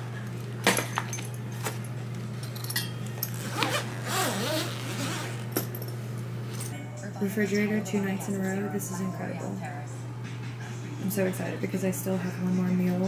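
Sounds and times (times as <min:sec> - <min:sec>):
steady low hum: 0:00.0 - 0:13.0
zipper being pulled open: 0:03.3 - 0:05.5.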